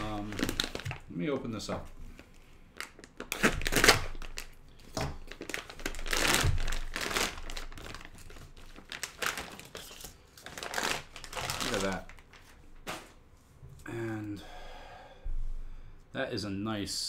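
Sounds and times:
packaging crinkling and rustling: 0.0 - 13.2.

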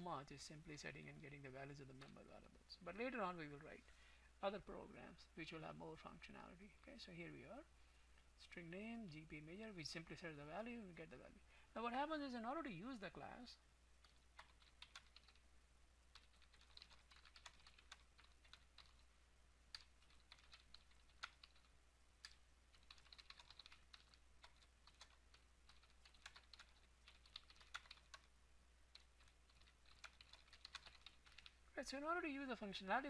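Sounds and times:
faint typing on keyboard: 1.0 - 2.6, 14.0 - 19.1, 19.7 - 32.5.

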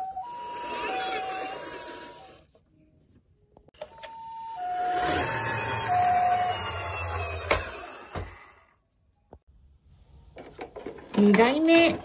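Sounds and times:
electronic two-tone siren: 0.0 - 2.1, 3.9 - 8.3
toy wheels rumbling on wood: 4.9 - 8.7.

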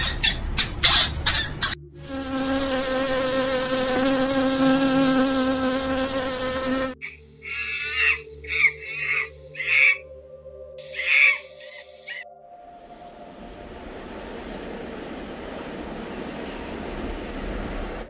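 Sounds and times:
bee buzzing: 1.6 - 7.0.

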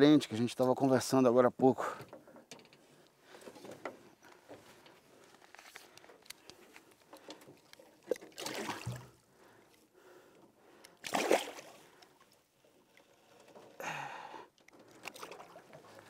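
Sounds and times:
fish splashing at water surface: 11.0 - 11.8.

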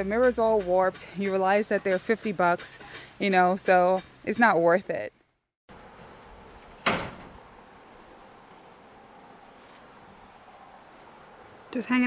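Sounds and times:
crickets chirring: 3.5 - 12.0.

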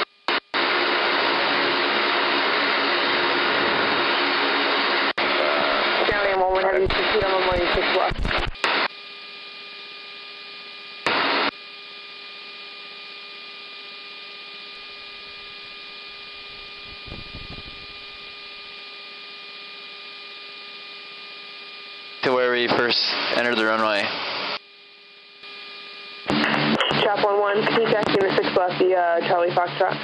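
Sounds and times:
radio static hiss: 0.0 - 8.9, 11.0 - 11.5, 14.8 - 18.8, 22.2 - 24.6, 25.4 - 30.0
steady tonal hum: 24.8 - 30.0.

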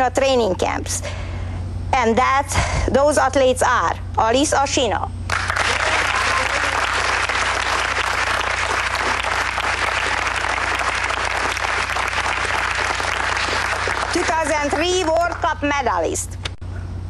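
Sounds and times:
people clapping: 5.3 - 15.5.

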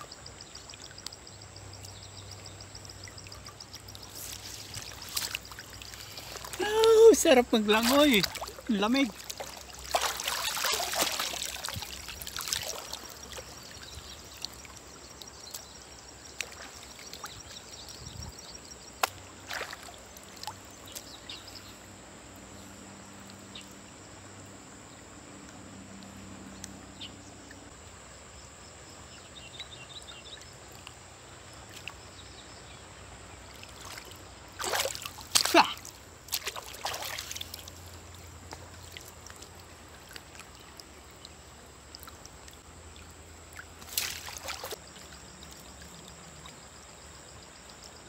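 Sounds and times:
water dripping: 0.5 - 18.0, 19.0 - 21.4, 33.6 - 48.0
water splashing: 2.8 - 17.8, 19.0 - 21.4, 33.5 - 46.7.

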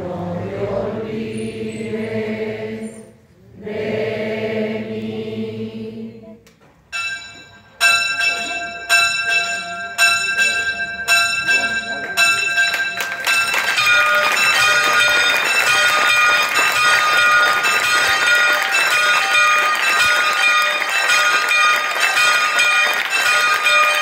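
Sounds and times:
group singing a hymn: 0.0 - 6.4
church bell ringing: 6.9 - 24.0.

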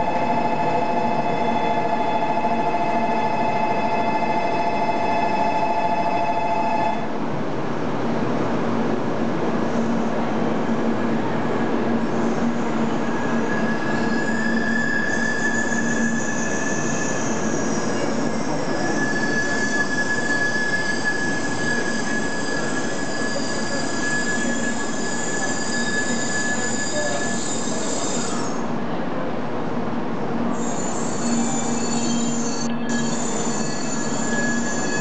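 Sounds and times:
high squeal: 12.1 - 28.6, 30.5 - 35.0.

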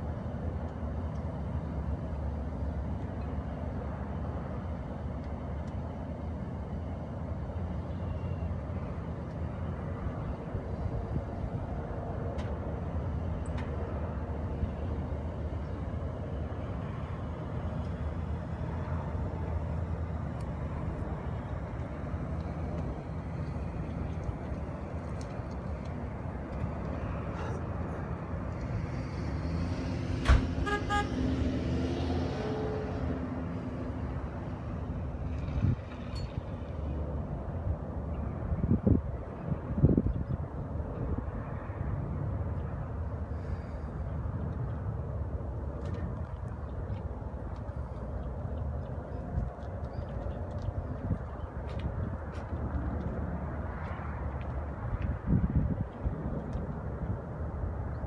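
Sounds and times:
distant heavy transport rumble: 0.0 - 58.0
van driving past: 20.8 - 37.0
short horn toots: 30.5 - 31.2.

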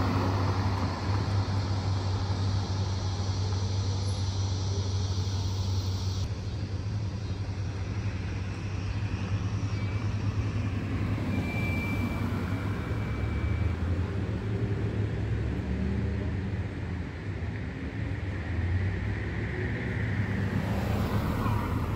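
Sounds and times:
cars driving past: 0.0 - 6.2, 9.9 - 16.9, 18.8 - 21.9
road noise hiss: 0.0 - 21.9
faint steady high tone: 9.3 - 14.2.

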